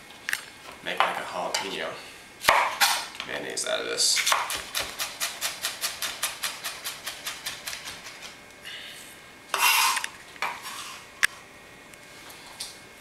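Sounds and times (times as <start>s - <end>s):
knife chopping on wooden board: 4.3s - 8.0s
knife scraping across board: 9.5s - 11.1s.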